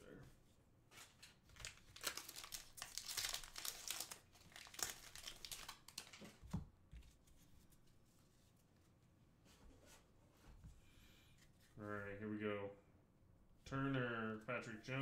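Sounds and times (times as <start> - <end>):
plastic wrapper crinkling: 1.5 - 6.4.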